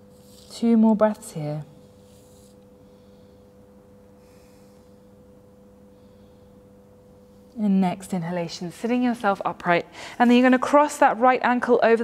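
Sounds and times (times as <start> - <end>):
steady low hum: 0.0 - 12.0
soft breath out: 2.8 - 5.1.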